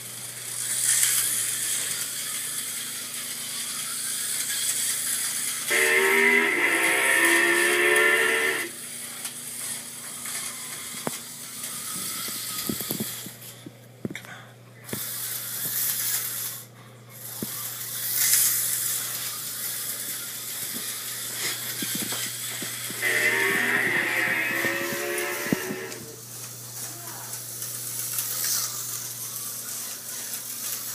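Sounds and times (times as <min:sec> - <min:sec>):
slot cars whirring on track: 0:00.6 - 0:10.5, 0:22.8 - 0:26.4
steady low hum: 0:21.0 - 0:26.5.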